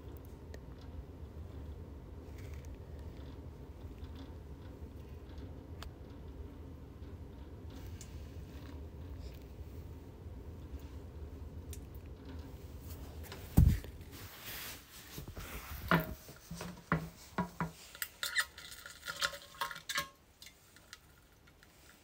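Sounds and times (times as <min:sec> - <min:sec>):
light clicks and clattering knocks: 0:15.8 - 0:22.0.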